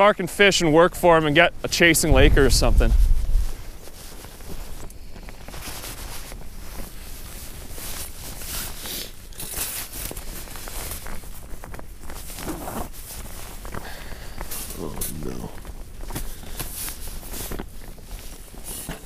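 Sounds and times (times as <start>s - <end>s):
footsteps in packed snow: 0.0s - 19.0s
winter clothing rustling: 0.0s - 19.0s.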